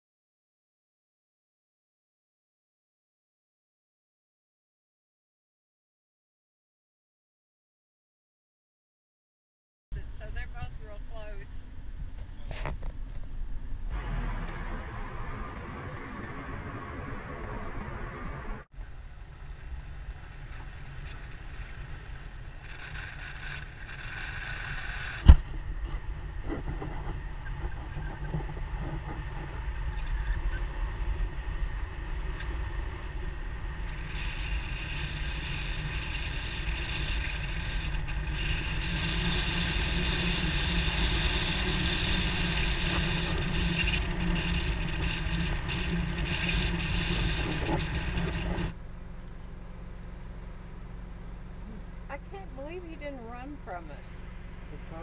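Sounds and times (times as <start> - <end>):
wind noise on microphone: 9.9 - 48.8
car engine and tyres rumbling: 10.0 - 55.0.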